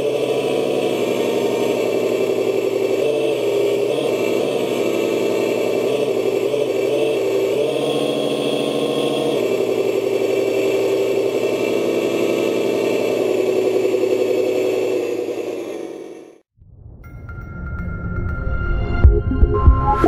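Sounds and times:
simulated truck engine idling: 0:00.0 - 0:16.4.

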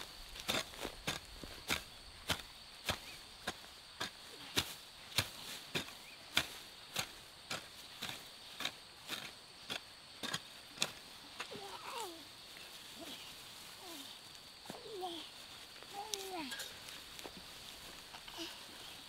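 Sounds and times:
footsteps scuffing: 0:12.5 - 0:19.0.

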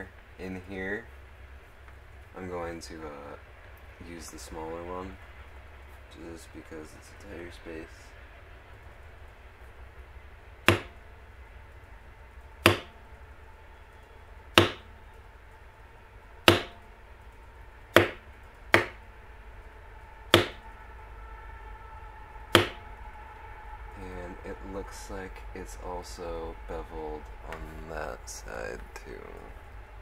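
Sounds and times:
mallet tapping leather tool: 0:10.7 - 0:10.9, 0:12.6 - 0:12.9, 0:14.6 - 0:14.8, 0:16.5 - 0:16.8, 0:18.0 - 0:18.2, 0:18.8 - 0:19.0, 0:20.3 - 0:20.6.

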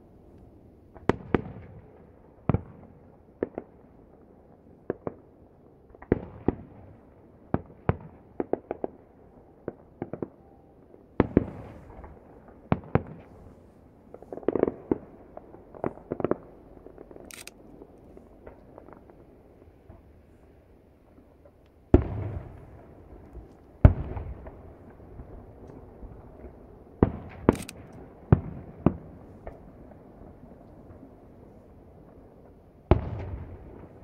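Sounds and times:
distant firework bangs: 0:11.2 - 0:20.5, 0:21.1 - 0:34.0.

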